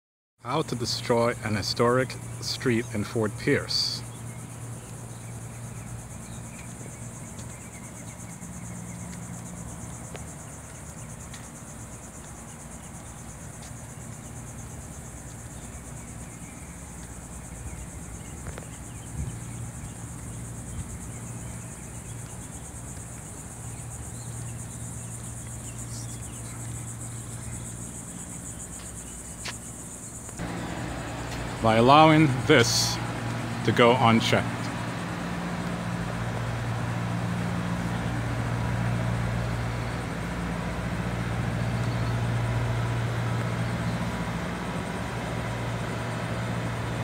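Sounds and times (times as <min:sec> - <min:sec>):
insect chorus buzzing: 0:00.4 - 0:47.0
low hum: 0:30.4 - 0:47.0.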